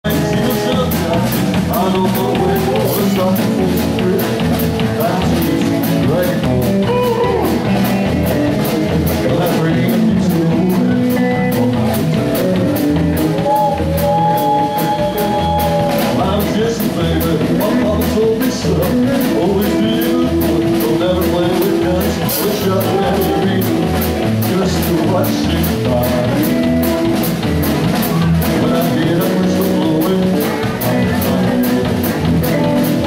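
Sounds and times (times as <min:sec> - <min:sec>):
person singing: 0:00.0 - 0:26.8, 0:28.0 - 0:33.0
drum kit beat: 0:00.0 - 0:33.0
guitars: 0:00.0 - 0:33.0.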